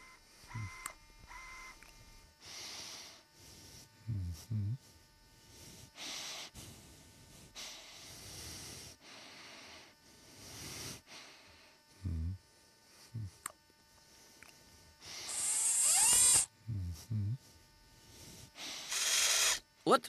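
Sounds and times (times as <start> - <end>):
person breathing heavily: 2.4 - 15.5, 16.6 - 19.5
person grunting: 4.1 - 4.8, 13.2 - 13.4, 16.7 - 17.4.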